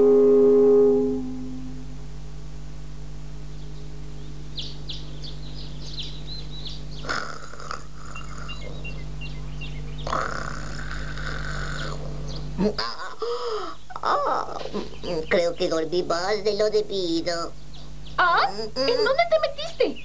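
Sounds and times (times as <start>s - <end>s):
held musical tone: 0.0s - 2.2s
birds chirping: 3.3s - 20.0s
cartoon character snoring: 7.0s - 8.8s, 10.0s - 12.3s.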